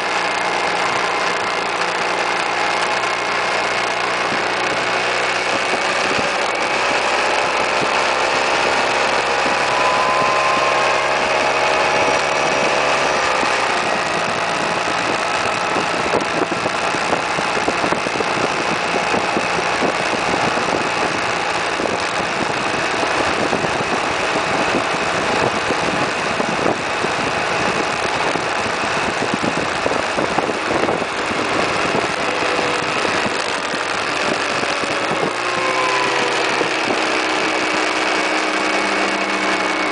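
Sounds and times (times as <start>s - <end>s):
scooter engine: 0.0s - 39.9s
wind rush over microphone: 4.0s - 39.9s.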